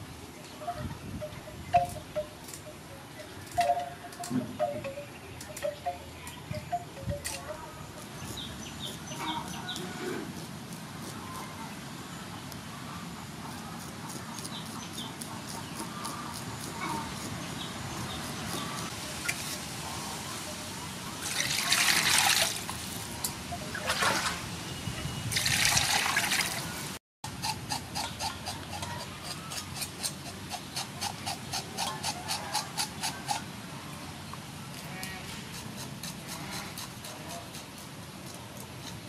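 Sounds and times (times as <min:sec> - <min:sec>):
water splashing in metal basin: 0:21.3 - 0:22.7, 0:25.4 - 0:26.6
knife scraping fish scales: 0:27.4 - 0:33.4, 0:34.8 - 0:39.0.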